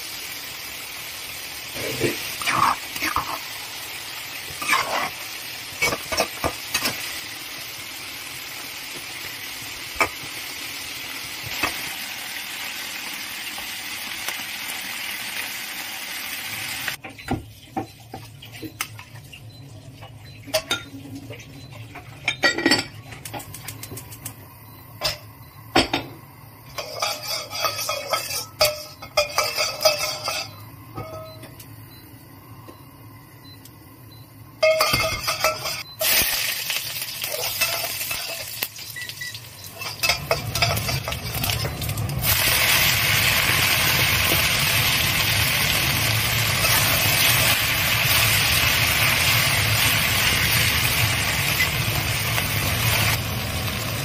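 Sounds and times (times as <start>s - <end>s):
garlic sizzling in fat: 0.0s - 17.0s, 23.2s - 54.0s
vegetables stir-frying hiss: 0.0s - 17.0s, 26.1s - 30.5s, 35.2s - 54.0s
metal spatula scraping in wok: 26.7s - 30.6s, 34.6s - 35.9s, 39.8s - 41.6s.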